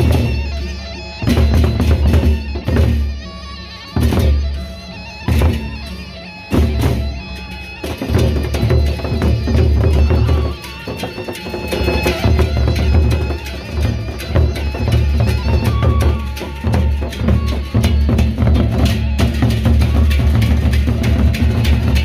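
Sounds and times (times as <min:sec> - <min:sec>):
barrel drums beating: 0:01.2 - 0:03.2, 0:06.5 - 0:22.0.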